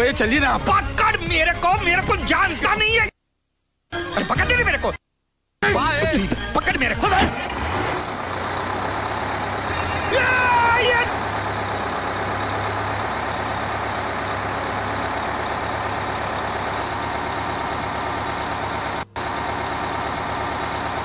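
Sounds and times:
heavy vehicle engine running: 7.1 - 21.0.

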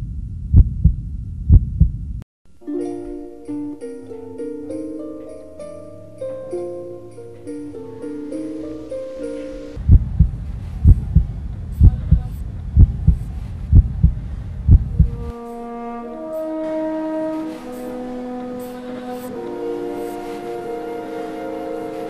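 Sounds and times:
heartbeat thumps: 0.0 - 2.2, 9.8 - 15.3
slow music of long held notes: 2.5 - 9.8, 15.2 - 22.0.

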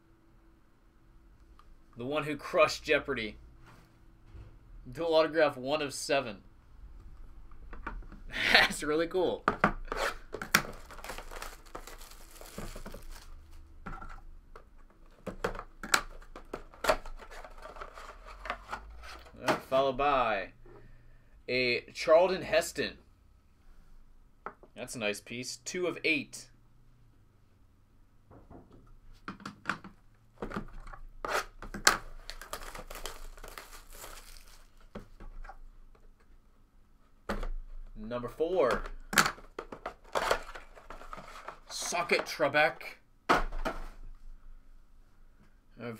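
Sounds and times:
plastic wrap crinkling: 10.1 - 13.7, 32.0 - 34.9.

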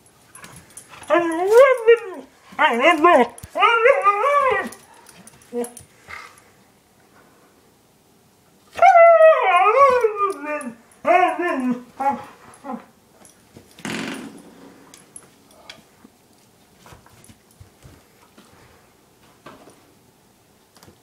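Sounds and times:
dog whining and howling: 1.0 - 5.8, 8.7 - 13.0.

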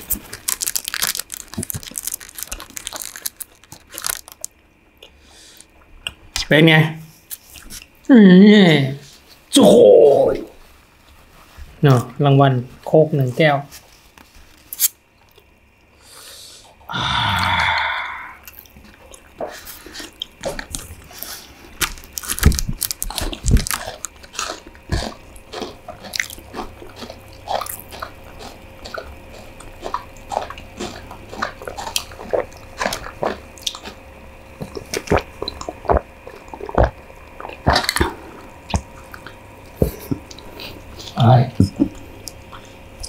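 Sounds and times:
chewing noodles: 0.0 - 5.9, 18.4 - 41.2.

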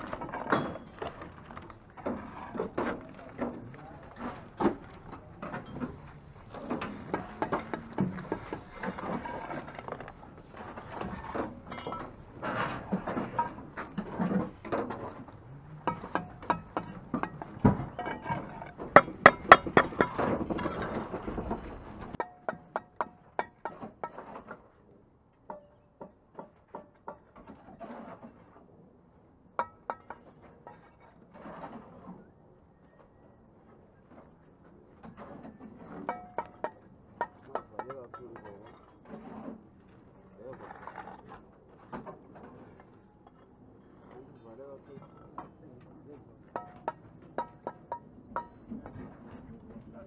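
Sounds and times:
trowel scraping mortar: 6.6 - 11.7, 40.3 - 41.5.

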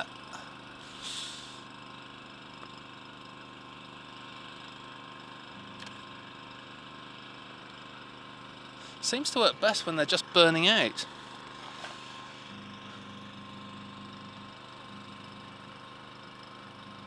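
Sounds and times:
microwave oven humming: 0.0 - 17.0
brief hiss: 0.8 - 1.7.

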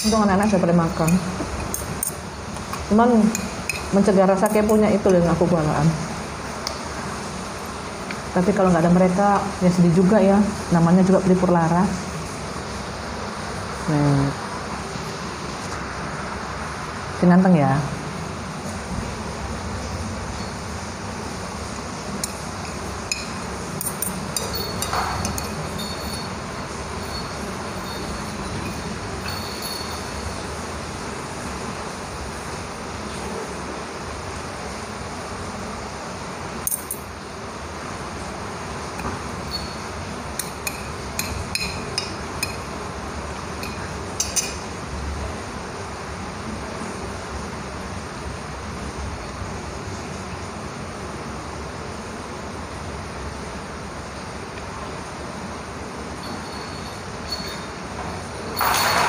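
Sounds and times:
fork clinking against a plate: 1.0 - 4.8, 22.2 - 26.4, 40.4 - 42.7, 43.6 - 44.6.

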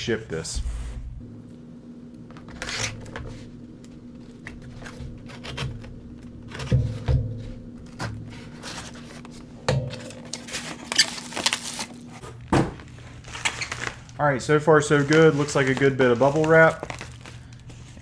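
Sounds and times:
bubble wrap crinkling: 10.1 - 12.2, 12.8 - 18.0.

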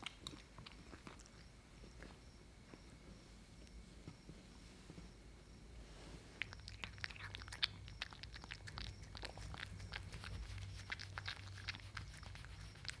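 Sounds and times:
cat chewing wetly: 0.0 - 1.5, 6.4 - 13.0.

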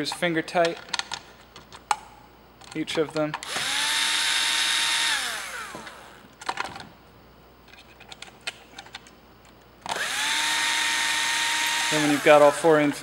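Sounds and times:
cordless drill driving screw: 3.4 - 6.2, 9.9 - 12.6
drill clutch clicks: 9.9 - 12.6.

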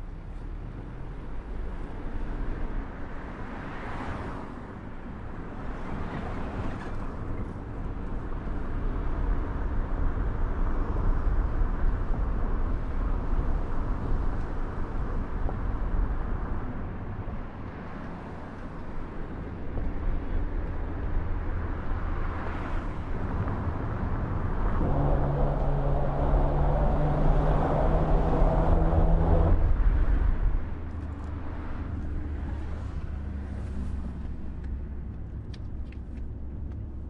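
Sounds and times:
tyres rumbling on steel grated bridge: 23.2 - 30.5.

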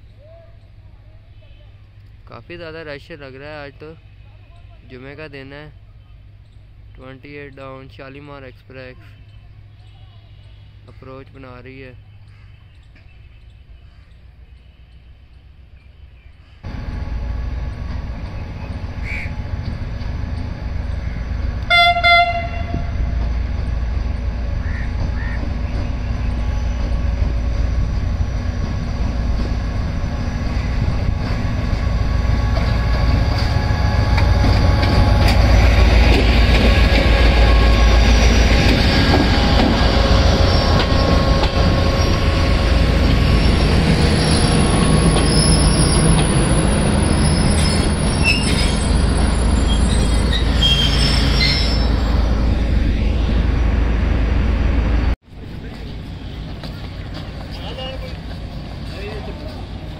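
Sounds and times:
locomotive and coaches rumbling: 0.0 - 59.9
high wheel squeal: 37.3 - 52.3.

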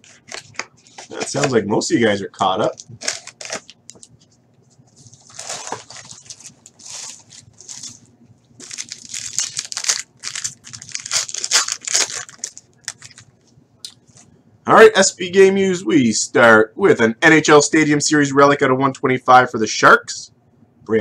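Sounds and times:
foil wrapper crinkling: 2.6 - 4.1, 5.0 - 13.3.

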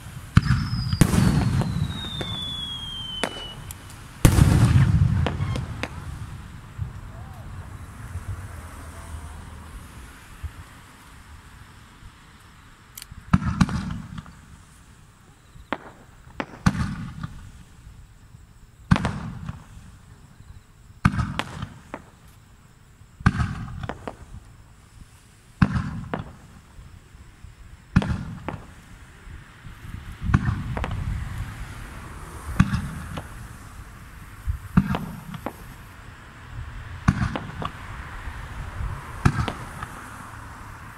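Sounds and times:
low rumbling echo: 0.0 - 10.0
fireworks bangs: 0.0 - 10.8, 13.3 - 14.9, 15.5 - 17.8, 18.8 - 20.2, 21.0 - 22.3, 23.2 - 27.0, 27.8 - 29.2, 30.1 - 40.9.

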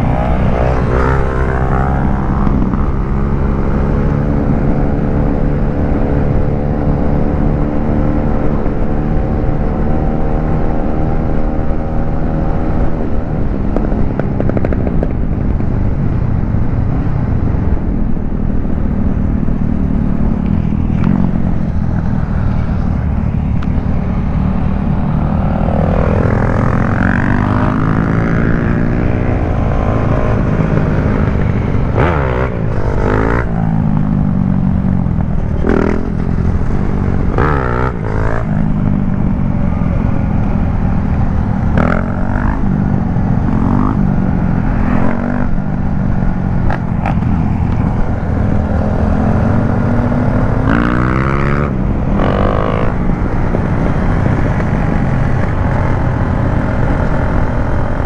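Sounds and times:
wind rush on microphone: 0.0 - 58.0
motorcycle engine running: 12.6 - 58.0.

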